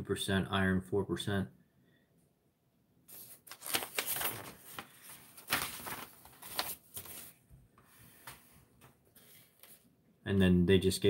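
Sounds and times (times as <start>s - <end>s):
paper rustling and crinkling: 3.1s - 7.4s, 9.2s - 9.9s.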